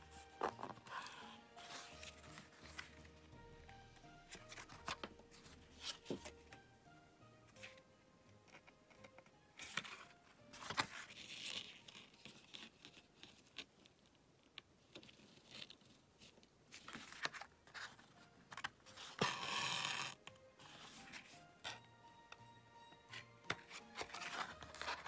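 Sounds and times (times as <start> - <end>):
card rustling and scraping: 0.0 - 3.2, 4.3 - 6.6, 8.5 - 13.7, 15.0 - 21.8, 23.1 - 25.0.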